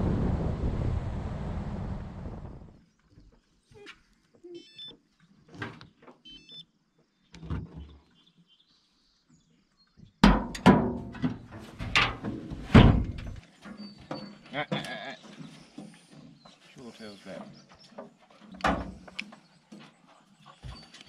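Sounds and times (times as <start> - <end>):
electronic beeps: 4.5 - 5.0, 6.2 - 6.7
metal clanks and thumps: 10.2 - 16.7, 17.3 - 20.0.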